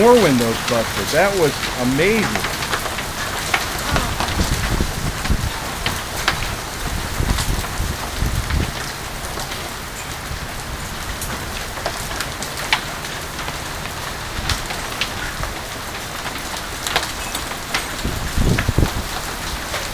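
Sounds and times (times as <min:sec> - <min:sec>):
hailstones clicking: 0:00.0 - 0:19.9
rain and hail falling: 0:00.0 - 0:19.9.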